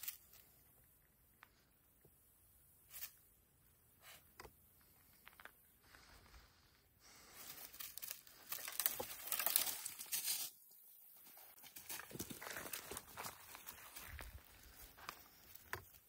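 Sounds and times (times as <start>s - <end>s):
footsteps crunching dry leaves: 7.1s - 10.5s, 11.3s - 15.6s.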